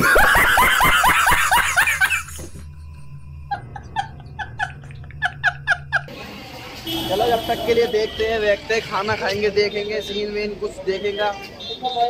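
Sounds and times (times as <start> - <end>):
loud laughter: 0.0 - 6.2.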